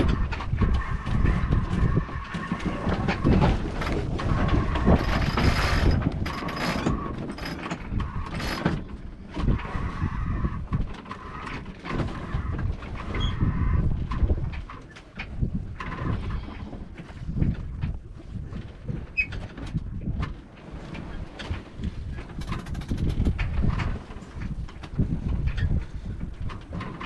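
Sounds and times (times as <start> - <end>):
sail flapping: 0.0 - 27.0
wind buffeting microphone: 0.0 - 27.0
winch clattering: 0.1 - 9.0.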